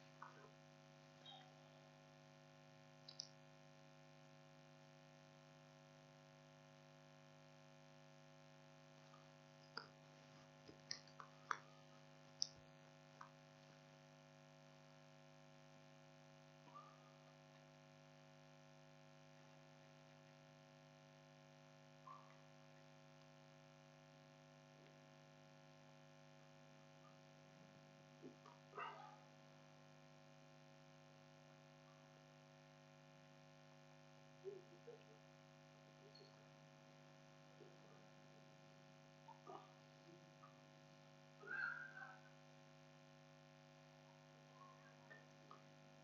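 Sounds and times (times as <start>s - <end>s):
electrical hum: 0.0s - 46.0s.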